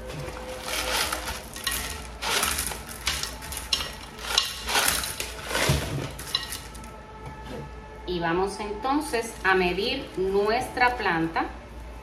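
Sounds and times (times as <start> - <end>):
stones clattering: 0.5 - 6.8.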